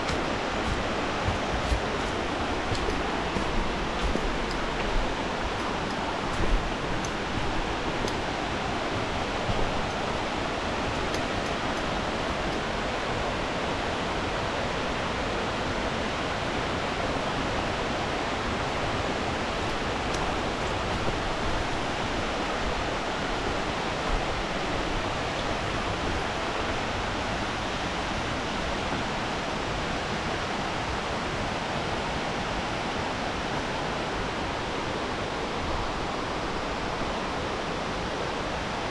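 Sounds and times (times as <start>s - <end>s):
waterfall rushing: 0.0s - 13.5s.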